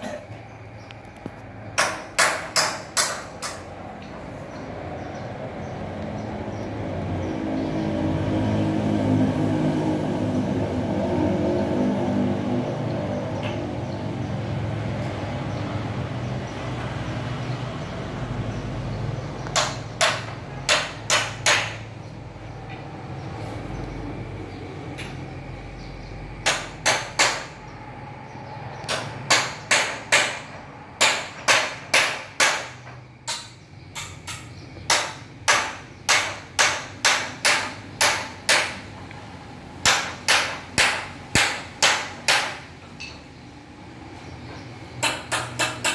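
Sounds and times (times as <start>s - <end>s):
sharp hammering knocks: 1.7s - 3.8s, 19.4s - 22.0s, 26.4s - 27.7s, 28.8s - 39.1s, 39.8s - 43.2s, 44.5s - 45.9s.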